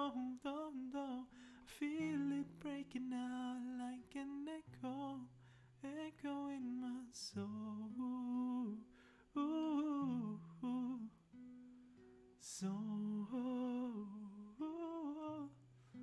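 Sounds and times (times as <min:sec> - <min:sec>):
classical guitar: 0:00.0 - 0:16.0
breath: 0:01.3 - 0:01.7, 0:05.4 - 0:05.8, 0:08.9 - 0:09.3.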